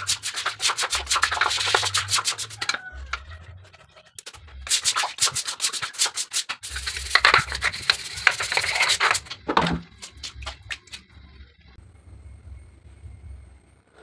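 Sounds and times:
scouring pad scrubbing stone: 0:00.0 - 0:04.1.

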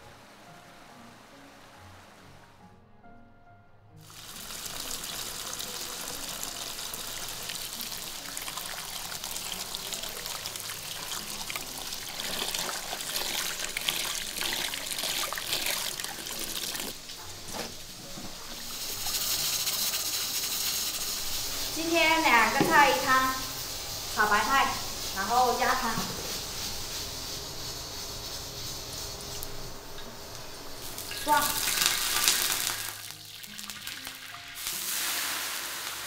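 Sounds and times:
steady hiss: 0:04.0 - 0:36.0
tap water splashing into basin: 0:22.6 - 0:22.9.

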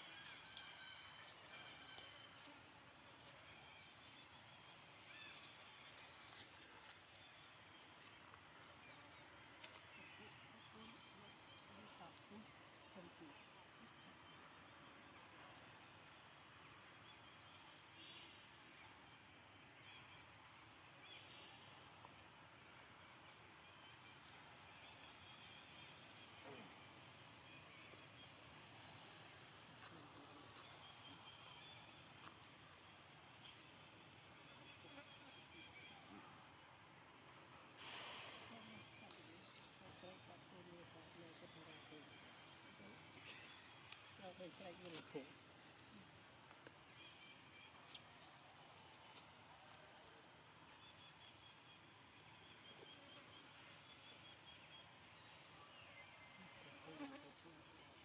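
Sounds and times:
faint forest ambience: 0:00.0 - 0:58.0.

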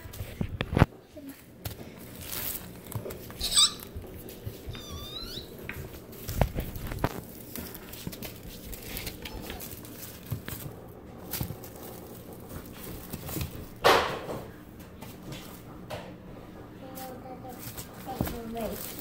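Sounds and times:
foil ribbon rustling: 0:01.2 - 0:13.9, 0:16.8 - 0:19.0
kitten squeaks: 0:03.4 - 0:04.0, 0:04.7 - 0:05.6.

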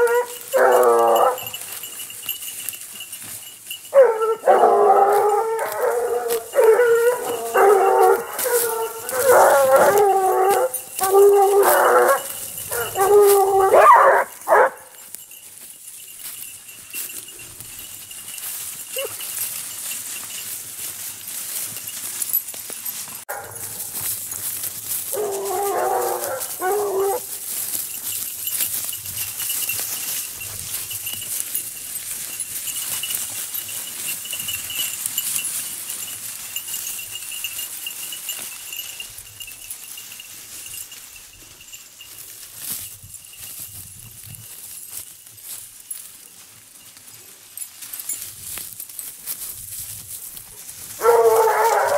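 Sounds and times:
hound yelping: 0:00.0 - 0:01.7, 0:03.9 - 0:15.0, 0:18.9 - 0:19.2, 0:25.1 - 0:27.4, 0:51.0 - 0:51.9
hounds baying: 0:00.0 - 0:03.0, 0:03.6 - 0:15.4, 0:16.9 - 0:20.3, 0:22.9 - 0:40.1, 0:50.5 - 0:51.9
dry leaves rustling: 0:00.0 - 0:51.9.

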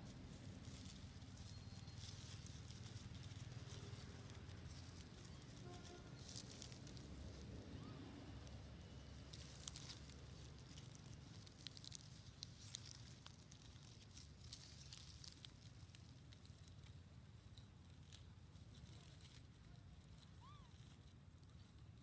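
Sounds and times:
low steady rumble: 0:00.0 - 0:22.0
small crackles and rustles: 0:00.0 - 0:22.0.

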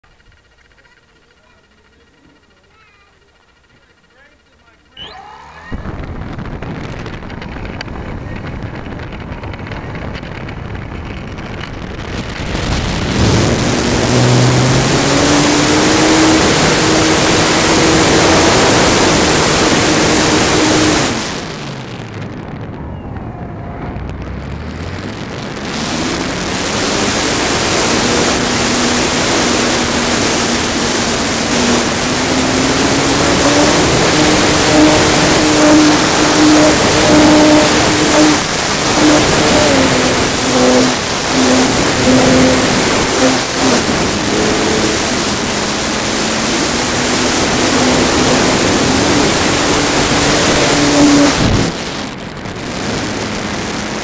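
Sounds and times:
electric motor and propeller: 0:00.0 - 0:54.0
wind rush: 0:05.6 - 0:54.0.

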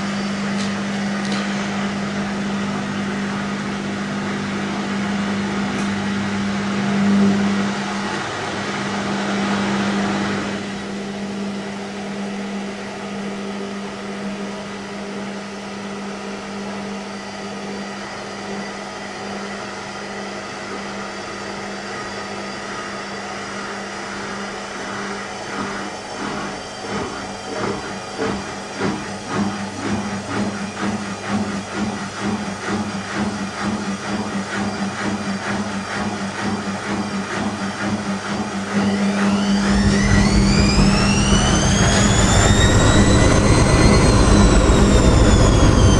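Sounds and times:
washing machine humming: 0:00.0 - 0:45.9
rhythmic pulsing: 0:38.7 - 0:45.9.

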